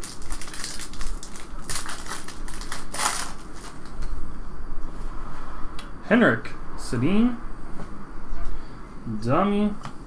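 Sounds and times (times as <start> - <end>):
foil wrapper tearing and crinkling: 0.0 - 4.1.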